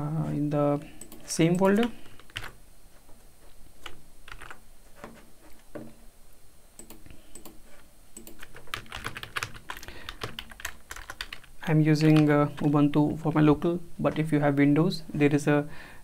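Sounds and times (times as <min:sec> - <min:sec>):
computer keyboard keystrokes: 0:01.0 - 0:02.6, 0:03.8 - 0:04.6, 0:08.2 - 0:12.7.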